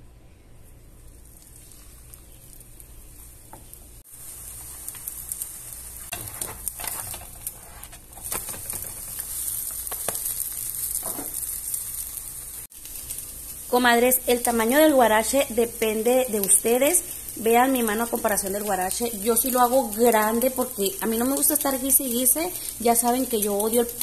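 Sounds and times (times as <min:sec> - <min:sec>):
food sizzling in hot fat: 0:00.8 - 0:24.0
pops and crackles of frying: 0:00.9 - 0:24.0.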